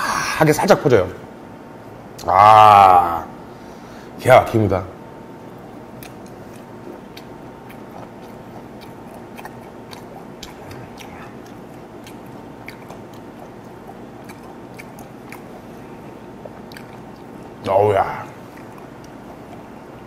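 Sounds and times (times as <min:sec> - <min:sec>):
low room hum: 0:00.0 - 0:20.0
man chewing with mouth closed: 0:05.5 - 0:17.6, 0:18.2 - 0:20.0
mouth clicks and smacks: 0:05.9 - 0:15.6, 0:16.4 - 0:17.6, 0:18.4 - 0:20.0.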